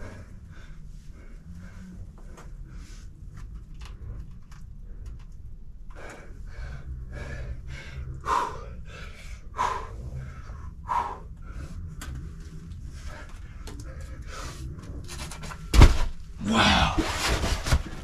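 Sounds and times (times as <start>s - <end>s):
person breathing hard: 0.0s - 3.3s, 5.7s - 15.0s.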